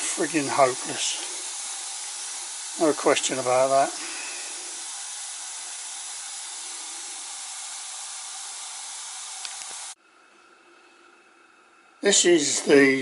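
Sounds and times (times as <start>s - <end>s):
steam burner hissing: 0.0s - 10.0s, 10.7s - 13.0s.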